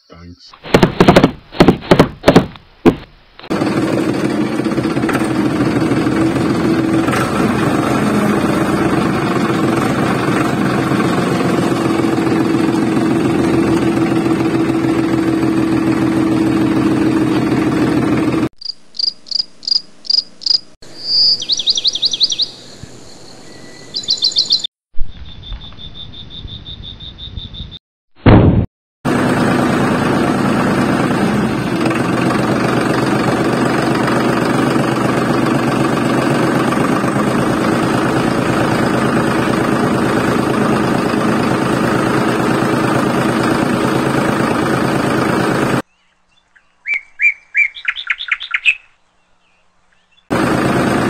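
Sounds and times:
small motor rattling: 0:03.5 - 0:18.5, 0:29.1 - 0:45.8, 0:50.3 - 0:51.0
high-pitched chirps: 0:18.6 - 0:27.8.

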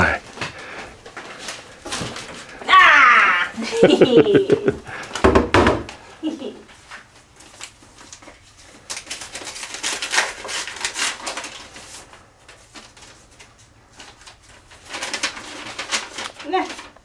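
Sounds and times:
paper rustling and crinkling: 0:00.0 - 0:02.6, 0:06.7 - 0:17.0.

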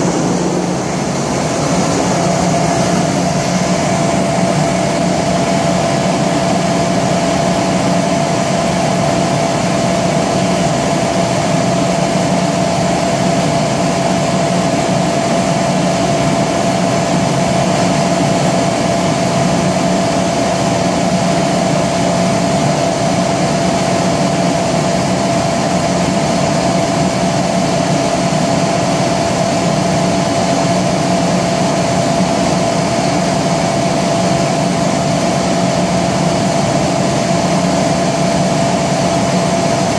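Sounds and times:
air hiss: 0:00.0 - 0:03.8
air compressor drone: 0:00.0 - 0:39.9.

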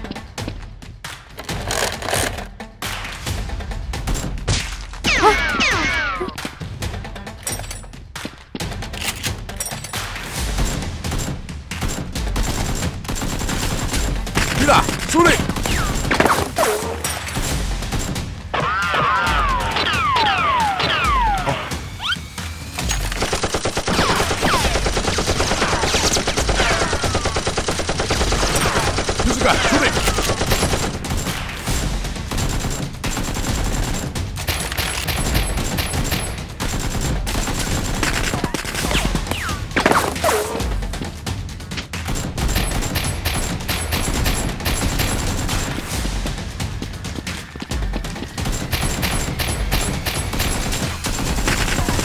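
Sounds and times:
background music: 0:00.0 - 0:52.0
rapid automatic gunfire: 0:10.3 - 0:16.6, 0:22.8 - 0:40.3, 0:42.0 - 0:46.0, 0:47.0 - 0:52.0.

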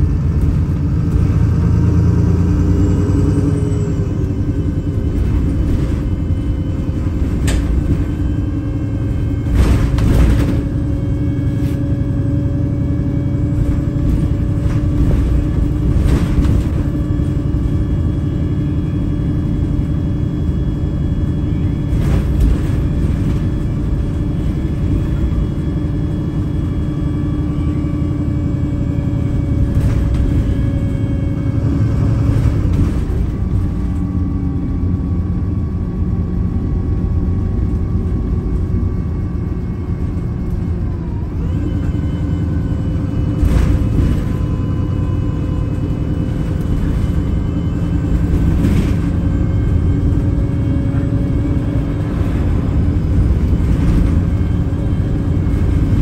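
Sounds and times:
bus diesel engine running: 0:00.0 - 0:56.0
low road rumble: 0:00.0 - 0:56.0
rattles and knocks: 0:05.0 - 0:11.4, 0:13.4 - 0:18.2.

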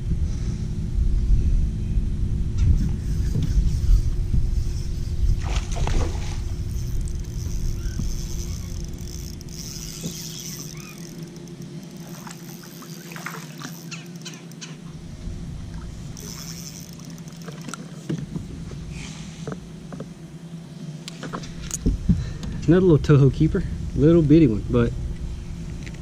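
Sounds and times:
faint steady hum: 0:00.0 - 0:26.0
fish splashing: 0:05.3 - 0:14.9
spinning reel winding: 0:06.4 - 0:14.8, 0:16.2 - 0:17.7
ticks and squeaks: 0:06.6 - 0:14.8.

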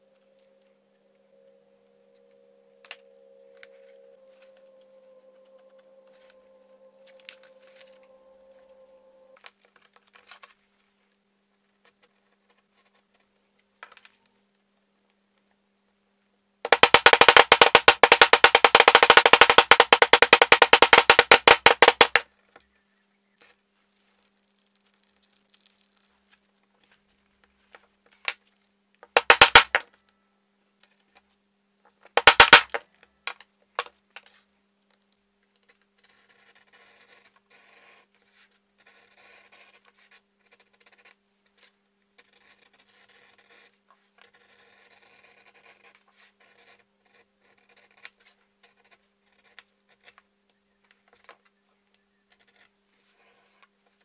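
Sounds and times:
metal tool tapping leather: 0:16.7 - 0:22.2, 0:29.2 - 0:29.8, 0:32.2 - 0:32.8.

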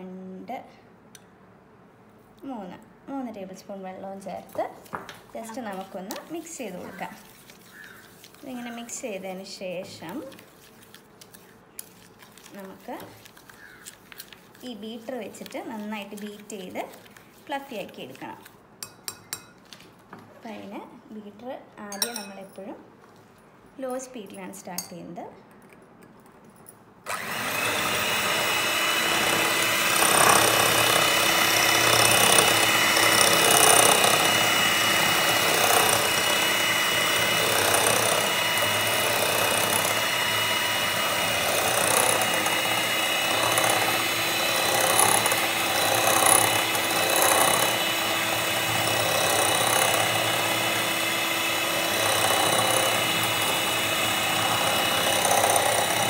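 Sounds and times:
electric hand mixer running: 0:27.1 - 0:56.0.

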